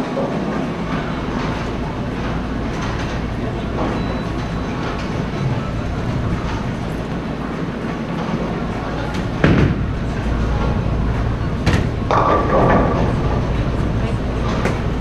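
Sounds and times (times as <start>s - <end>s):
bowling balls rolling: 0.1s - 15.0s.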